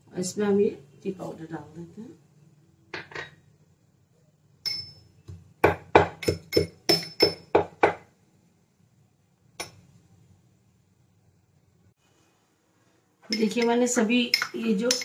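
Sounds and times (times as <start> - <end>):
metal pestle pounding in mortar: 5.6 - 8.0.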